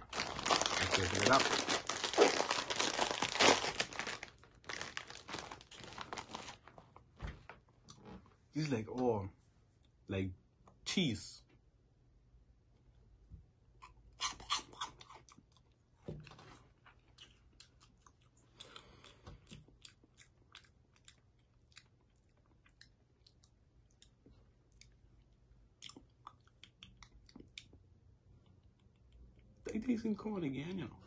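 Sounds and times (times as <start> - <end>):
person chewing crunchy snack: 13.8 - 15.8, 16.9 - 25.0.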